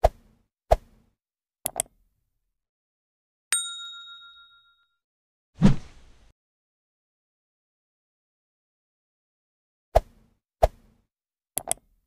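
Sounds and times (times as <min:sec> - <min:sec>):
mouse clicks: 0:01.7 - 0:01.9, 0:11.6 - 0:11.9
bright bell ding: 0:03.5 - 0:05.0.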